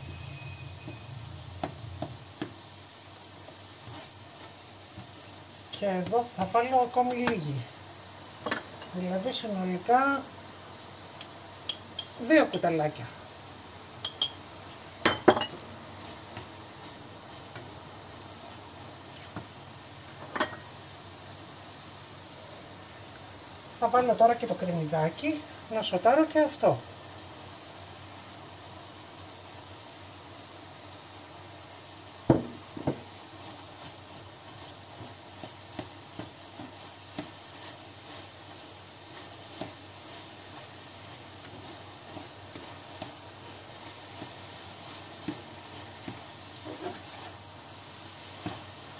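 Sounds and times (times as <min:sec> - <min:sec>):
faint sizzle of frying meat: 0:00.0 - 0:48.9
spatula scraping a pan: 0:03.5 - 0:05.3, 0:33.4 - 0:48.9
glass jar clinking on frying pan: 0:11.6 - 0:12.2, 0:14.0 - 0:14.4, 0:15.0 - 0:15.7, 0:20.3 - 0:20.7.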